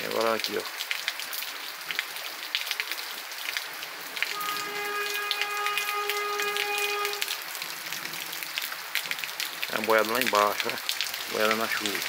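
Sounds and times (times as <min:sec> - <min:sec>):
steady rain falling: 0:00.0 - 0:12.0
steady pitched tone: 0:04.3 - 0:07.3.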